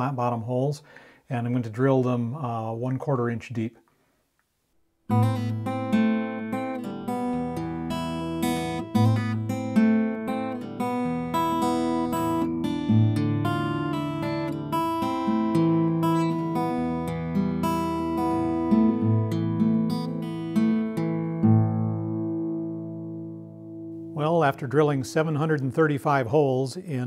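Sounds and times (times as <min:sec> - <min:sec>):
acoustic guitar music: 0:05.0 - 0:27.0.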